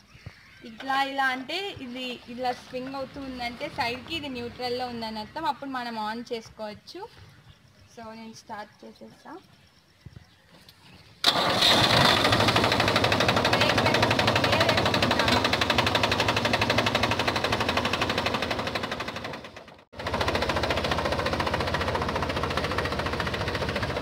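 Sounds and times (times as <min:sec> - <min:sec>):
tractor diesel engine knocking: 0:11.3 - 0:24.0.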